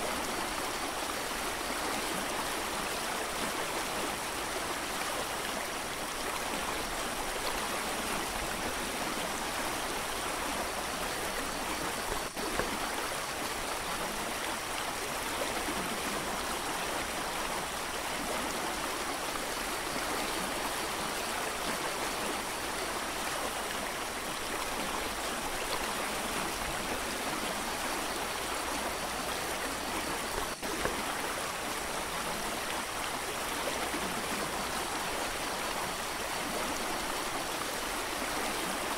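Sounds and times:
creek rushing: 0:00.0 - 0:38.9.

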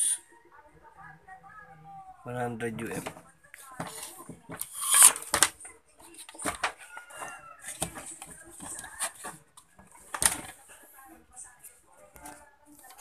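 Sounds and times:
clicks and knocks handling circuit board: 0:03.8 - 0:10.6.

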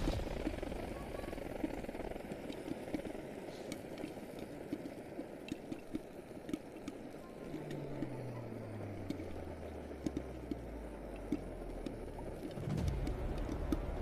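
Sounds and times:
low steady hum: 0:00.0 - 0:14.0
popcorn popping: 0:00.0 - 0:14.0
stove burner roaring: 0:00.0 - 0:14.0.

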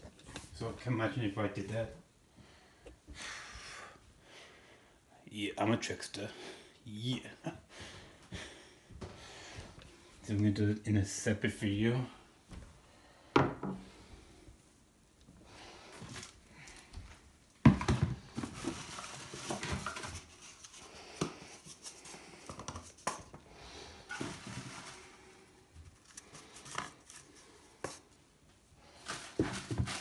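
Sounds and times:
cardboard tubes set on countertop: 0:17.6 - 0:23.4, 0:24.1 - 0:25.2, 0:25.8 - 0:28.2, 0:29.0 - 0:30.0
rustling: 0:18.2 - 0:28.2, 0:28.9 - 0:30.0.

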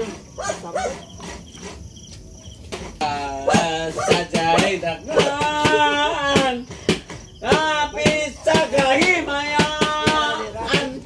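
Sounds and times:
cricket trill: 0:00.0 - 0:11.0
sharp knocks: 0:02.6 - 0:11.0.

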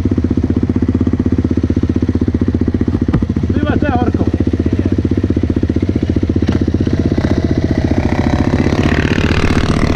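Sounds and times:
quad engine idling: 0:00.0 - 0:09.9
second engine rising in pitch: 0:06.5 - 0:09.9.

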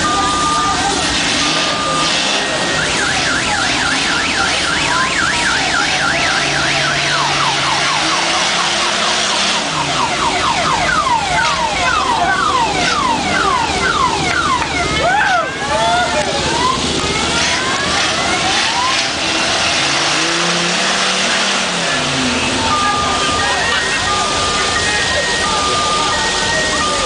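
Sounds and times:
electronic siren yelping: 0:00.0 - 0:20.7
steady background noise: 0:00.0 - 0:27.0.

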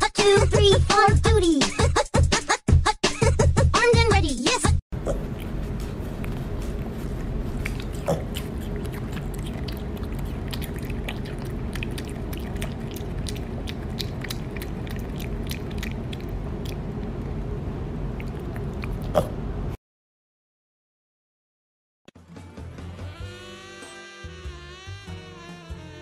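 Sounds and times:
low background hum: 0:05.0 - 0:19.8
piglet chewing with clicks: 0:07.5 - 0:17.4, 0:18.2 - 0:19.3.

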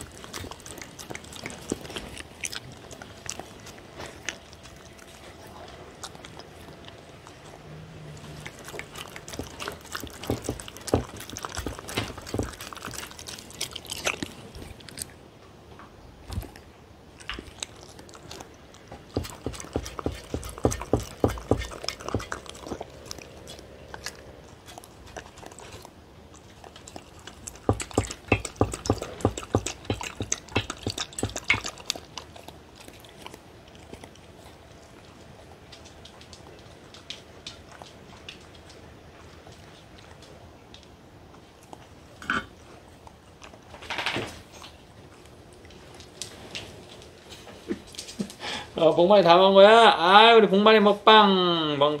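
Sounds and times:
dog licking food from metal tray: 0:08.3 - 0:14.4, 0:17.3 - 0:23.2, 0:24.0 - 0:34.3.

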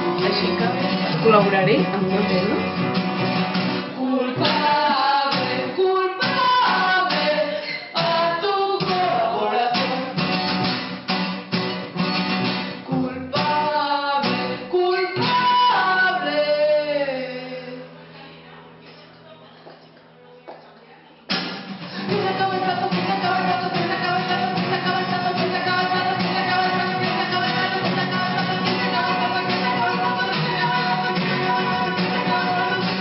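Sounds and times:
woman singing: 0:00.0 - 0:02.8, 0:04.0 - 0:10.2, 0:12.9 - 0:18.3, 0:22.0 - 0:33.0
acoustic guitar: 0:00.0 - 0:33.0.

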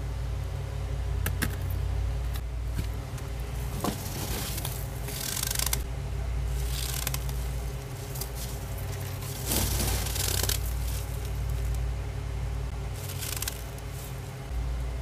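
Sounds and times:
steady low hum: 0:00.0 - 0:15.0
scooping crunchy frost: 0:03.6 - 0:05.2, 0:06.5 - 0:11.8.

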